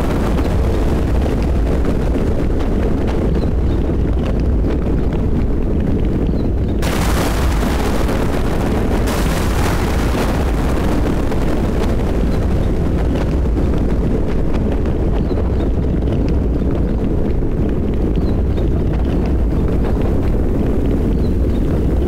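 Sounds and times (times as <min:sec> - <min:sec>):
crackling hiss of thunder: 0:00.0 - 0:04.0, 0:06.8 - 0:16.9
rain: 0:00.0 - 0:06.2, 0:06.8 - 0:22.0
deep thunder rumble: 0:00.0 - 0:22.0.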